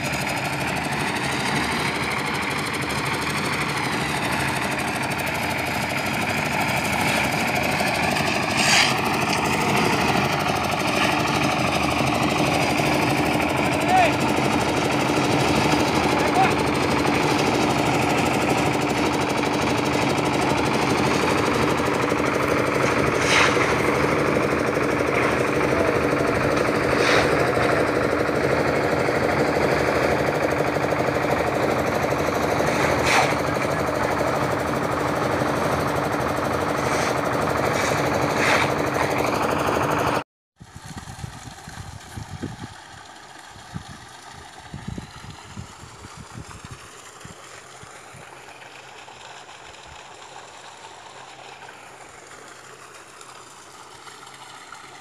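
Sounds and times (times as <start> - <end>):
engine running: 0.0 - 55.0
wind on microphone: 40.7 - 42.7.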